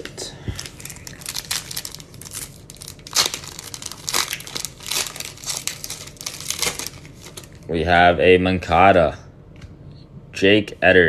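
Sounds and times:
foil wrapper crinkling and tearing: 0:00.6 - 0:07.6.

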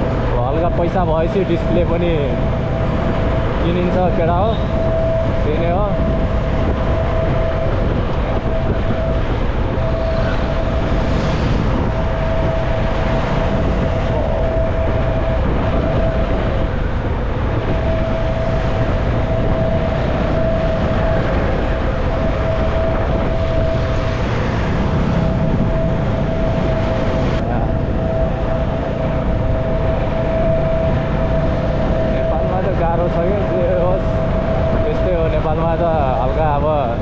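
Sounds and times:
wind and road noise: 0:00.0 - 0:37.0
motorcycle engine: 0:06.0 - 0:32.3.

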